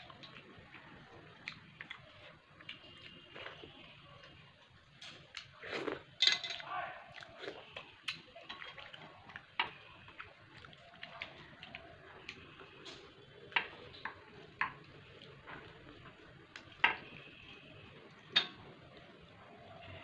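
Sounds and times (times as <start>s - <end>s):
wet eating smacks and clicks: 7.1s - 15.9s.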